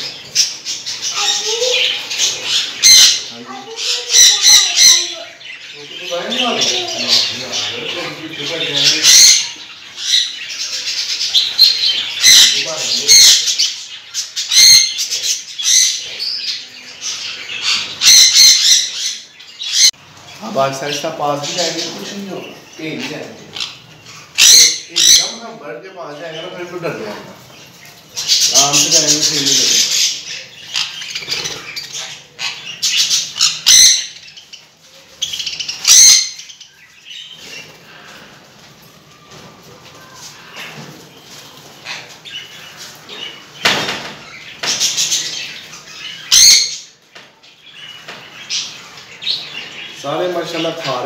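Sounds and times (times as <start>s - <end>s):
soft bird chattering: 0.0s - 26.8s
parrots squawking: 0.0s - 51.0s
loud sharp bird squawks: 46.1s - 46.9s.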